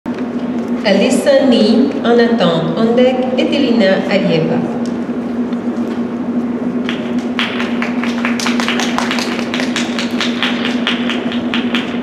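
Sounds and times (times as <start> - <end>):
low electrical hum: 0.1 - 12.0
spectators clapping: 6.8 - 12.0.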